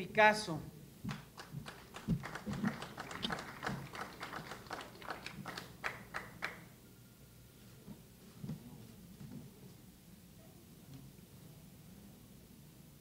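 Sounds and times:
small audience clapping: 0:01.1 - 0:06.7.

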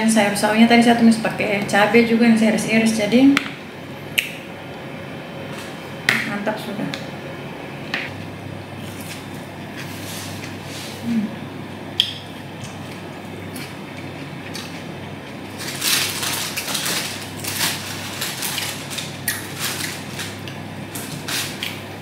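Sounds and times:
crunchy crackling rustle: 0:12.7 - 0:21.8.

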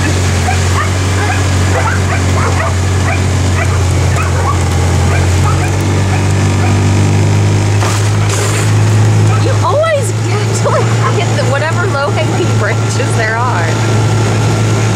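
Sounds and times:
vehicle engine hum: 0:00.0 - 0:14.9
dog yipping and whining: 0:00.4 - 0:06.9, 0:09.2 - 0:09.6.

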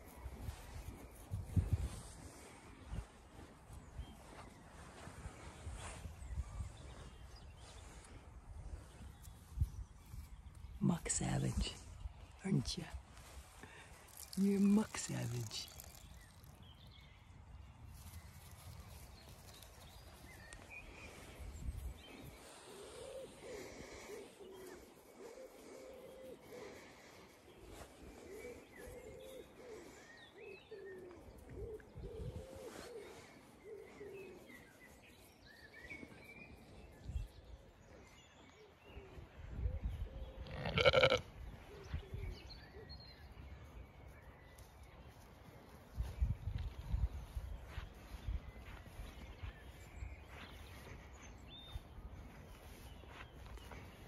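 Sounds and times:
birds chirping: 0:00.0 - 0:54.0
sheep bleating: 0:40.5 - 0:41.3
faint bird chirps: 0:46.0 - 0:54.0.

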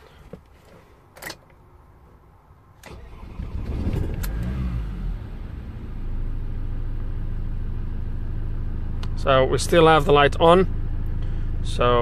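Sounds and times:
diesel engine starting and idling: 0:02.8 - 0:12.0.

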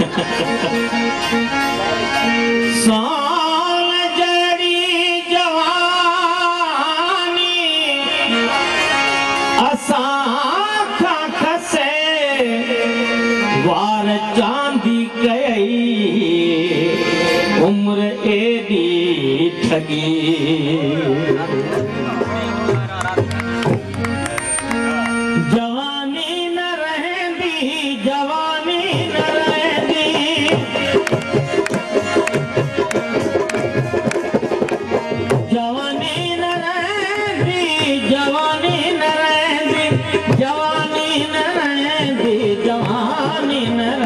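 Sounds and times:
ornamented folk melody: 0:00.0 - 0:44.0
percussion strokes: 0:28.9 - 0:44.0.

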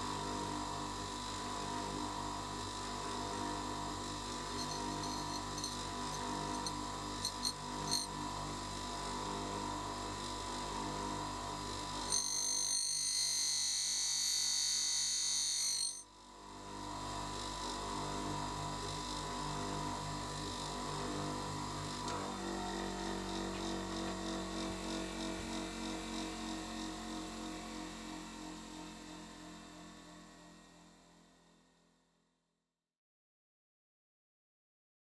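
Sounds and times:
bench grinder motor hum: 0:01.5 - 0:16.0, 0:16.7 - 0:27.7.

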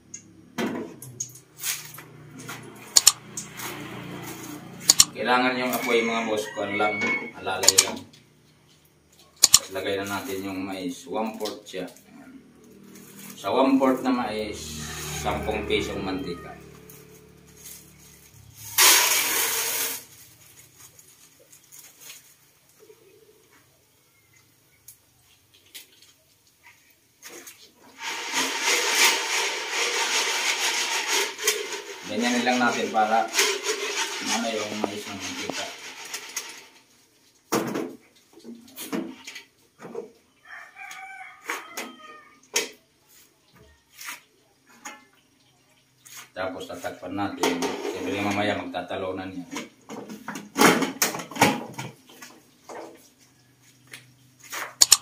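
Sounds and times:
rooster crowing: 0:04.9 - 0:08.0, 0:14.5 - 0:17.3, 0:40.4 - 0:42.4
kernels sizzling in hot oil: 0:17.6 - 0:22.2, 0:27.9 - 0:37.5.

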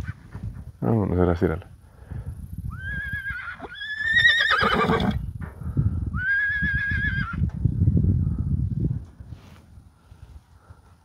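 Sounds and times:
horse whinnying: 0:02.7 - 0:05.2, 0:06.2 - 0:07.4.

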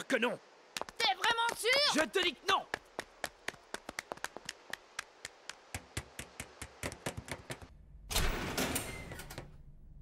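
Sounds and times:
quick light footsteps: 0:02.6 - 0:07.7.

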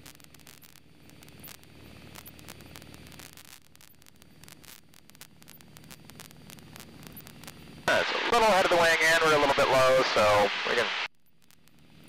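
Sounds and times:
static clicks and crackles: 0:00.0 - 0:12.0
aircraft piston engine drone: 0:05.6 - 0:11.1.

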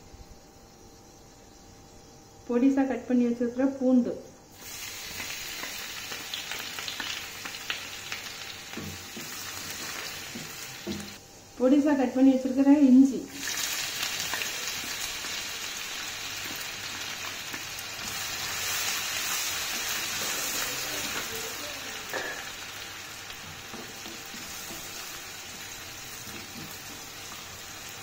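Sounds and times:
garlic sizzling in hot oil: 0:04.5 - 0:11.2, 0:13.3 - 0:28.0.

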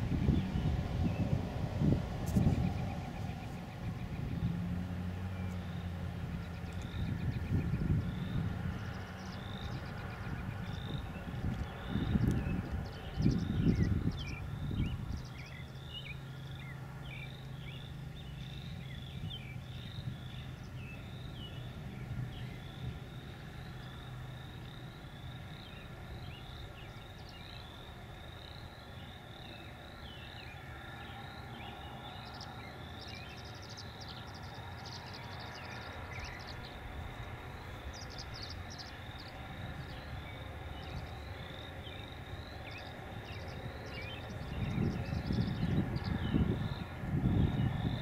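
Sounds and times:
steady low rumble: 0:00.0 - 0:34.6.

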